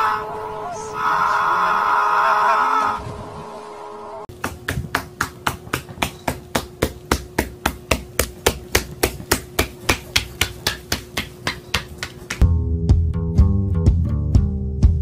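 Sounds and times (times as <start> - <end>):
parrot feet tapping on wood: 4.3 - 12.4.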